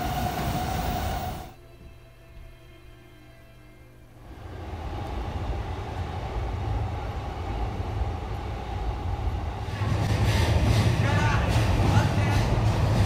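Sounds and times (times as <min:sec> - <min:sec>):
city noise: 0:00.0 - 0:01.6, 0:03.8 - 0:13.0
train rumbling on steel viaduct: 0:00.0 - 0:01.6, 0:04.3 - 0:13.0.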